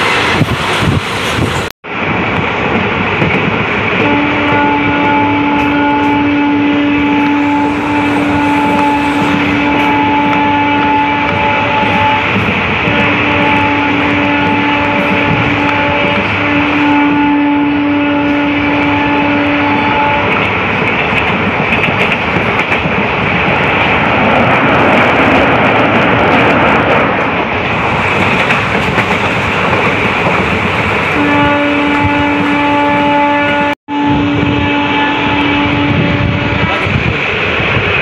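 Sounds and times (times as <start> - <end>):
train wheels clattering on rails: 0.0 - 6.2, 7.1 - 16.8, 19.7 - 31.2
train horn steady tone: 4.0 - 20.4, 31.2 - 37.0.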